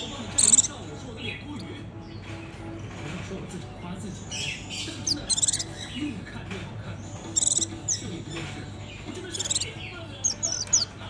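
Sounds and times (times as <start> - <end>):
bird chirping high: 0.0 - 1.6, 4.4 - 6.0, 7.2 - 8.1, 9.2 - 11.0.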